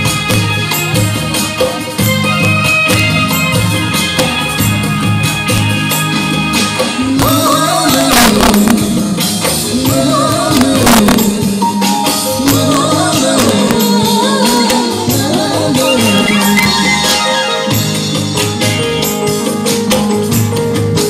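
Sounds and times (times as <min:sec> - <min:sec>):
live pop band playing: 0:00.0 - 0:21.0
person singing: 0:06.9 - 0:17.8.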